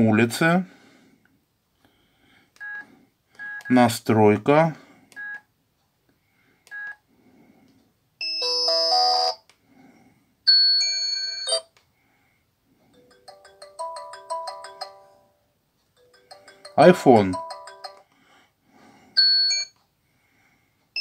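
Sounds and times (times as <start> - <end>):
ringtone melody of quick notes: 8.2 - 9.4, 10.5 - 11.7, 13.0 - 15.4, 16.0 - 18.0
phone key beep: 11.3 - 11.7
electronic ringtone chord: 13.0 - 15.4, 16.0 - 18.0.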